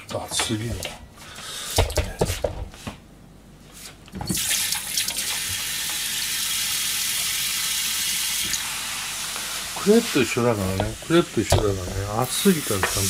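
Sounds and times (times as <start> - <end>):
tap water running into sink: 4.3 - 10.0.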